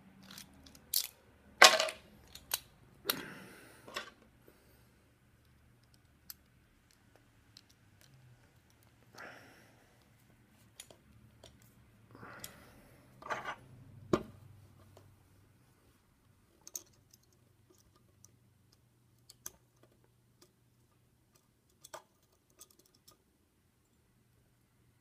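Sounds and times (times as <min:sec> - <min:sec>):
metallic clicks of lock picking: 0:00.2 - 0:01.2, 0:02.2 - 0:03.2.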